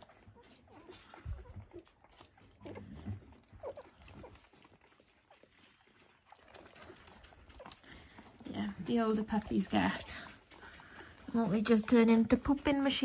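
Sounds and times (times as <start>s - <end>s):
puppies squeaking and grunting: 0.0s - 13.0s.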